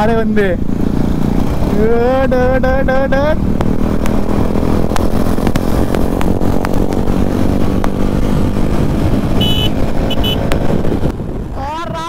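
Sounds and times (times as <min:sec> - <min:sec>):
motorcycle engine running: 0:00.0 - 0:11.5
wind rumble on microphone: 0:00.0 - 0:12.0.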